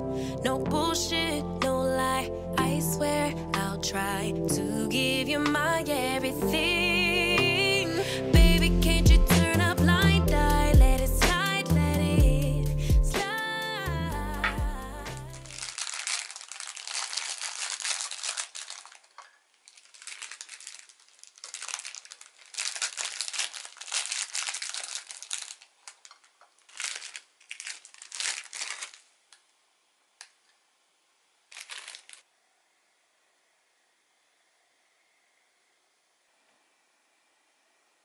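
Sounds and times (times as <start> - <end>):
plastic bag crinkling: 15.2 - 29.5, 31.5 - 32.3.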